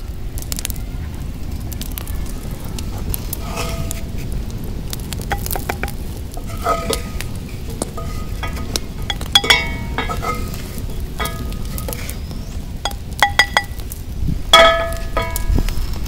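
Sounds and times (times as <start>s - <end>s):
low steady rumble: 0.0s - 16.0s
wooden spatula scraping skillet: 2.8s - 13.8s.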